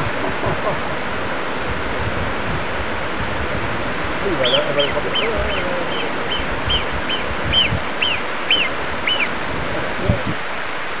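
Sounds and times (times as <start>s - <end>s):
mountain stream rushing: 0.0s - 11.0s
marmot alarm whistles: 4.4s - 9.3s.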